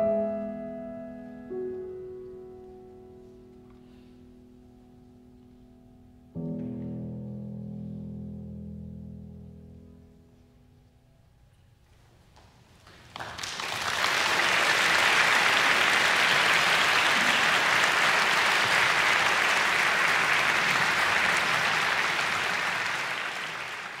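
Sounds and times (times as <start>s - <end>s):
audience applause: 12.8s - 24.0s.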